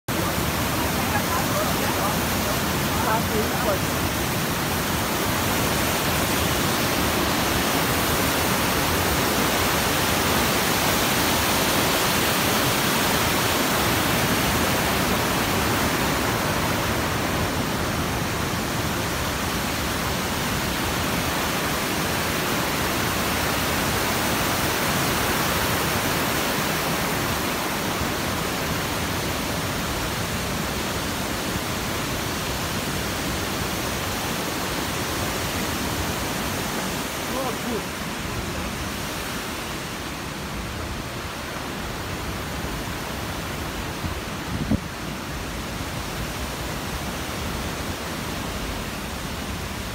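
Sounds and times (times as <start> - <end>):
waterfall and stream rushing: 0.1 - 49.9.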